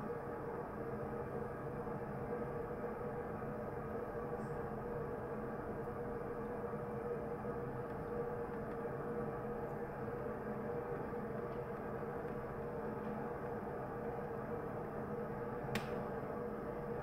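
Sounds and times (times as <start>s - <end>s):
even hum: 0.0s - 17.0s.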